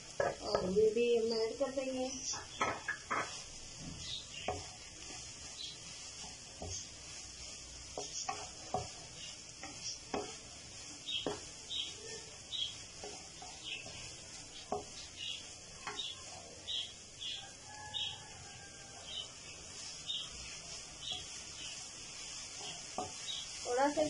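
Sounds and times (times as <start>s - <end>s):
food sizzling in frying pan: 0.0s - 24.0s
wooden spatula scraping pan: 0.0s - 24.0s
spatula knocking against pan: 0.2s - 0.7s, 2.3s - 3.4s, 9.6s - 10.5s, 11.1s - 11.6s, 14.6s - 15.1s, 15.8s - 16.1s.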